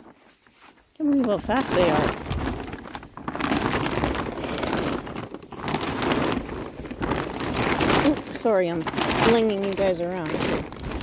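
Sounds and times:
plastic sheeting crinkling: 0:00.0 - 0:11.0.

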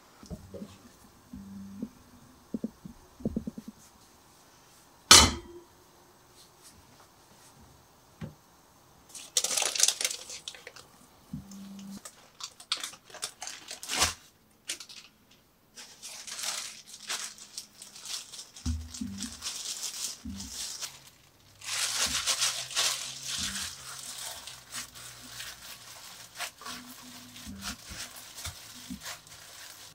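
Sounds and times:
sharp knock: 0:05.1 - 0:05.6
parchment paper crinkling: 0:09.1 - 0:10.9, 0:11.7 - 0:15.2, 0:15.8 - 0:29.9.

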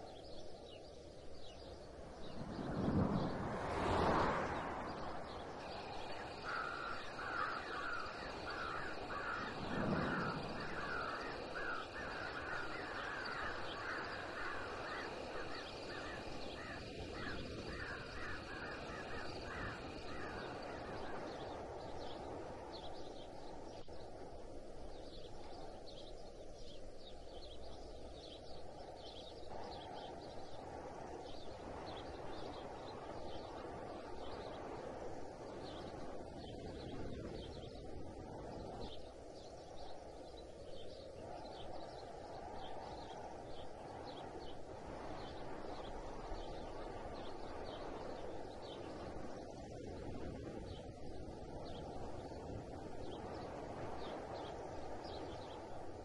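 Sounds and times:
faint high bird calls: 0:00.0 - 0:55.8
crows cawing: 0:06.0 - 0:21.2.

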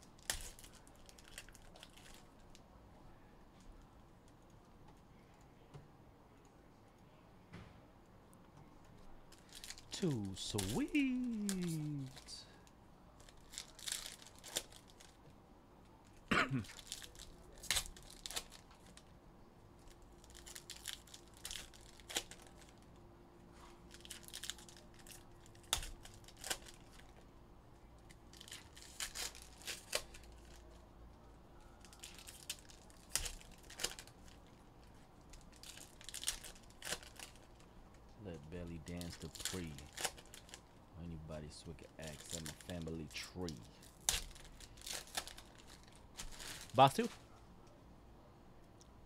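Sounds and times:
foil wrappers tearing and crinkling: 0:00.1 - 0:02.6, 0:09.3 - 0:12.4, 0:13.2 - 0:15.2, 0:16.6 - 0:19.1, 0:19.8 - 0:22.8, 0:23.9 - 0:27.2, 0:28.3 - 0:30.8, 0:31.8 - 0:34.6, 0:35.2 - 0:37.7, 0:38.4 - 0:40.7, 0:42.0 - 0:47.2.

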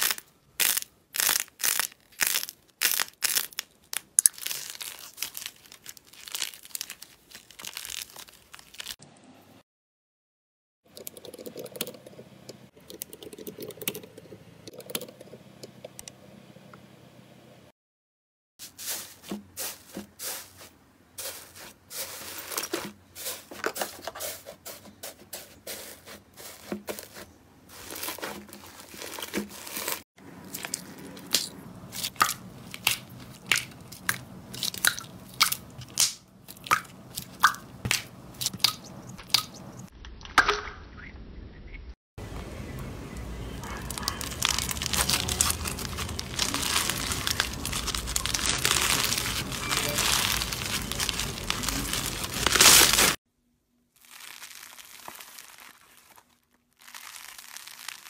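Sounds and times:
slime squishing and crackling: 0:00.0 - 0:09.0, 0:26.9 - 0:39.7, 0:43.6 - 0:53.2, 0:54.0 - 0:58.0.

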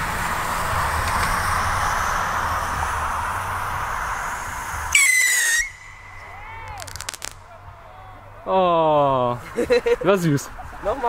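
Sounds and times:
rocket shrill whistle: 0:04.5 - 0:07.4.

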